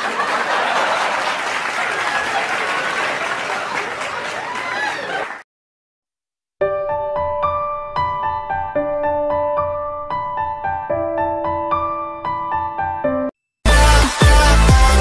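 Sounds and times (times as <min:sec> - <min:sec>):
crowd applauding: 0:00.0 - 0:05.4.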